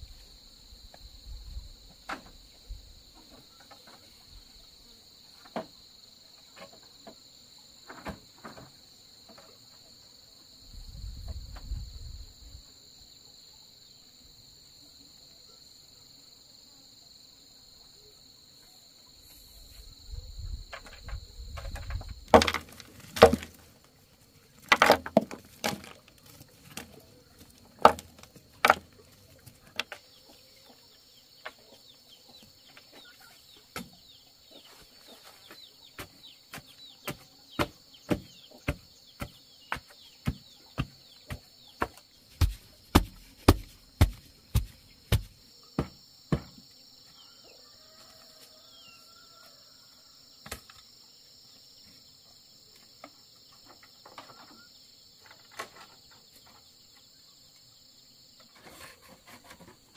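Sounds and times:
insects droning: 0:00.0 - 0:59.9
bamboo pole knocking: 0:22.3 - 0:23.6, 0:27.8 - 0:28.8, 0:37.6 - 0:46.5.

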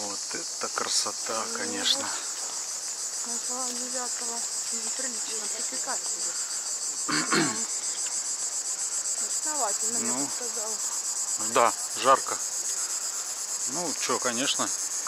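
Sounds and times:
faint voices: 0:00.0 - 0:02.6
cicadas chirring: 0:00.0 - 0:15.0.

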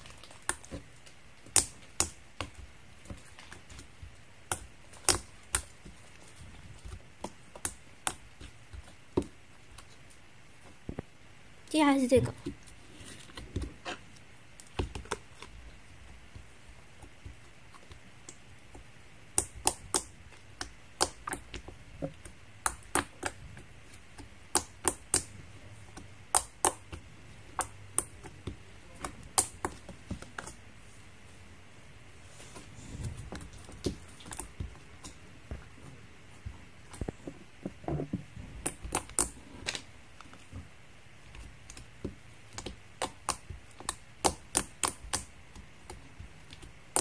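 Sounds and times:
slime squishing: 0:00.0 - 0:11.2, 0:11.8 - 0:31.3, 0:32.2 - 0:47.0
slime clicking and popping: 0:01.4 - 0:03.6, 0:04.4 - 0:05.8, 0:19.3 - 0:21.6, 0:24.2 - 0:25.3, 0:26.0 - 0:30.6, 0:38.6 - 0:39.8, 0:42.5 - 0:47.0.

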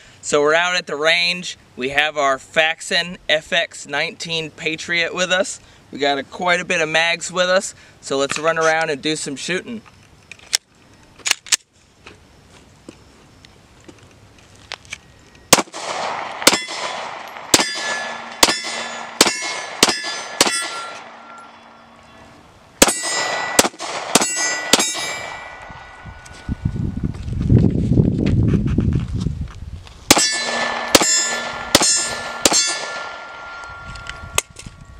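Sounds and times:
pistol shots: 0:15.5 - 0:21.9, 0:22.8 - 0:25.9, 0:30.1 - 0:33.7
steel plate ringing: 0:16.5 - 0:26.6, 0:30.1 - 0:34.9.

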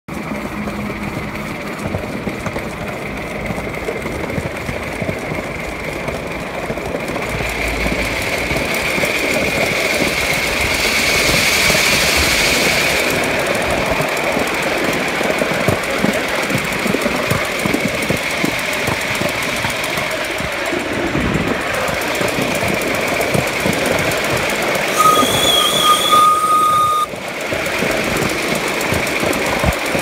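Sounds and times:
miniature train wheels ringing: 0:00.2 - 0:30.0
steam hissing: 0:07.4 - 0:14.8, 0:19.8 - 0:27.1.

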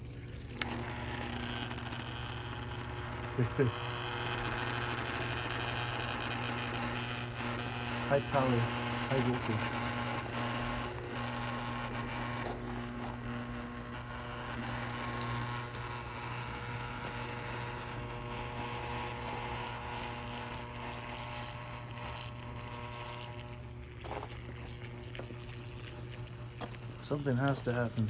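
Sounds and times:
low electrical hum: 0:00.0 - 0:28.0
small electrical crackles: 0:00.0 - 0:28.0.

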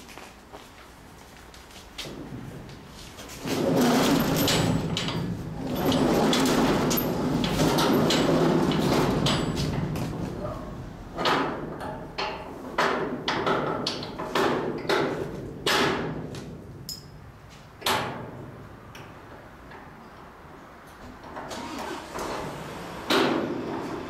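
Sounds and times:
sharp knocks and clanks: 0:03.3 - 0:17.2, 0:17.8 - 0:19.1, 0:23.1 - 0:24.0
door rattling rumble: 0:03.4 - 0:11.8.

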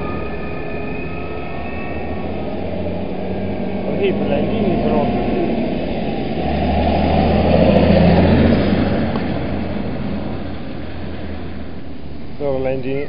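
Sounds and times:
tractor diesel engine passing: 0:00.0 - 0:13.0.

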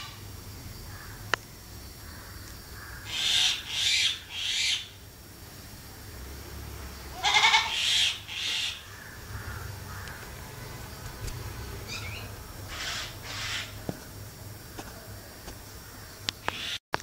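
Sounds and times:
goats bleating: 0:07.2 - 0:07.7.

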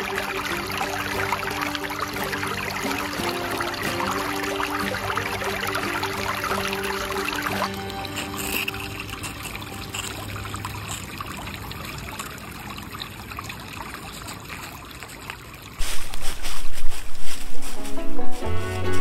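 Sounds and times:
creek water trickling over stones: 0:00.0 - 0:19.0.

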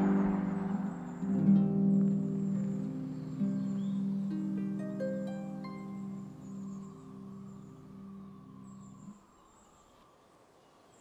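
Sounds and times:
harp chord ringing: 0:00.0 - 0:07.8.

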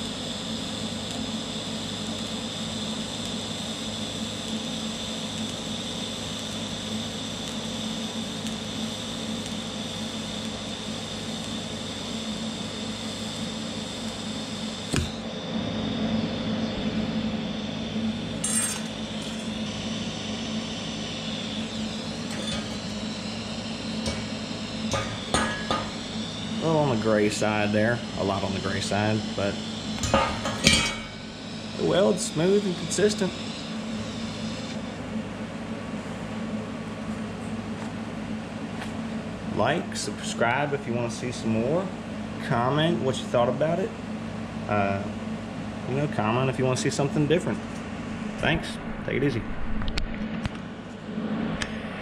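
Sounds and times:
welding arc hissing: 0:00.0 - 0:35.1.

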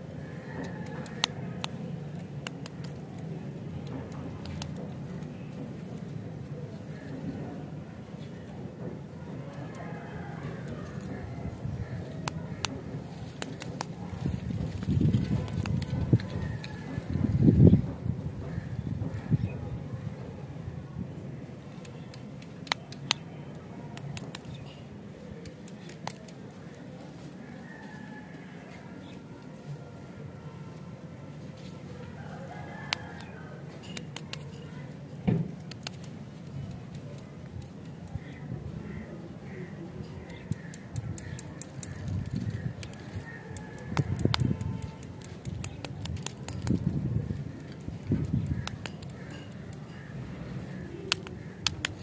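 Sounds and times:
low background noise: 0:00.0 - 0:52.0
small sharp clicks: 0:00.6 - 0:05.4, 0:21.8 - 0:23.2, 0:35.5 - 0:38.2, 0:40.2 - 0:46.9, 0:51.1 - 0:52.0
candy wrapper crinkling: 0:42.9 - 0:49.7.

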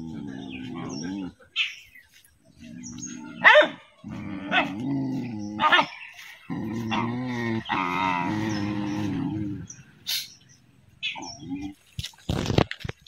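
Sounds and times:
dogs growling: 0:00.0 - 0:01.6, 0:02.4 - 0:11.9
dog barking: 0:03.4 - 0:03.9, 0:04.5 - 0:04.8, 0:05.6 - 0:05.9.

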